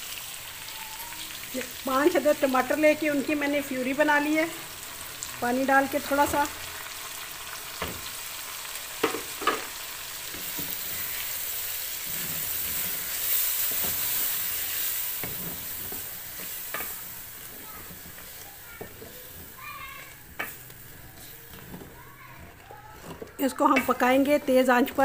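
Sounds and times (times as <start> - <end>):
food sizzling in hot fat: 0.0 - 25.0
spatula scraping metal pot: 12.0 - 25.0.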